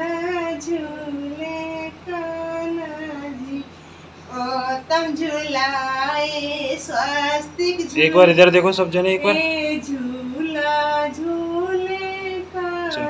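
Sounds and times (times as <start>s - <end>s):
woman and child singing: 9.2s - 13.0s.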